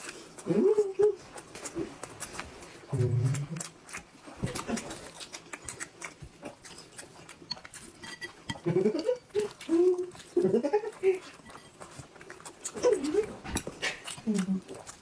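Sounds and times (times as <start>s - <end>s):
wet chewing clicks: 0.0s - 15.0s
muffled vocal hums: 0.4s - 1.2s, 8.6s - 11.3s.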